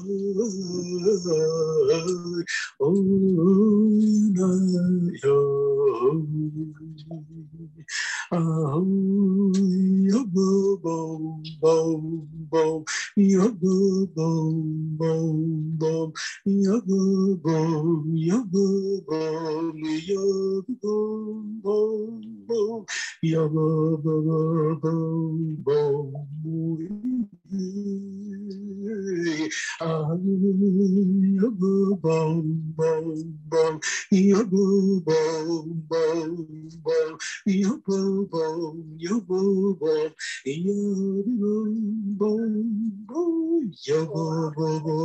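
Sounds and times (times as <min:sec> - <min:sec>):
person singing wordless melody: 0:00.0 - 0:45.0.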